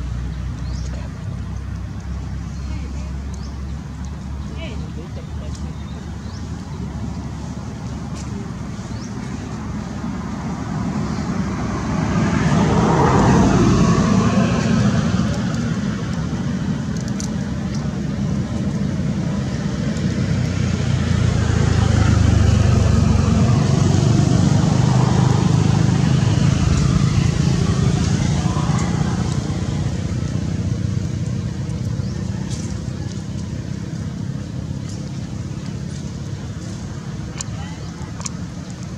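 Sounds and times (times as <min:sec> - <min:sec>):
vehicles passing: 0:00.0 - 0:38.9
faint voices: 0:24.4 - 0:30.6, 0:31.4 - 0:38.9.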